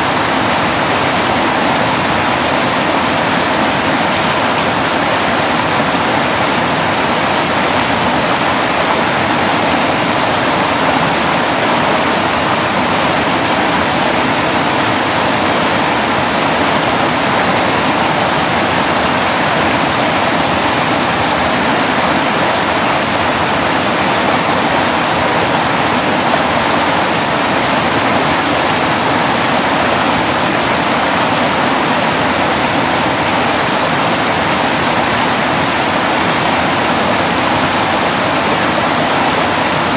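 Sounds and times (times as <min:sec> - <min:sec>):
creek rapids rushing over boulders: 0:00.0 - 0:39.9.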